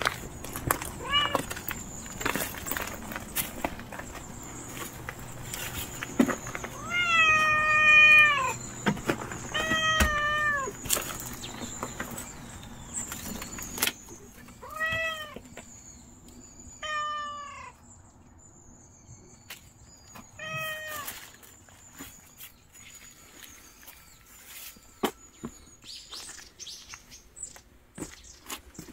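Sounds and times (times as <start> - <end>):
cat meowing: 1.0 - 1.5, 6.7 - 8.6, 9.5 - 10.8, 14.6 - 15.4, 16.8 - 17.8, 20.4 - 21.2.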